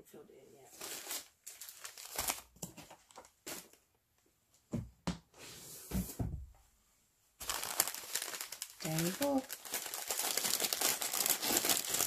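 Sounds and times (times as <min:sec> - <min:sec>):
paper parcels rustling and crinkling: 0:00.7 - 0:03.9, 0:07.4 - 0:12.0.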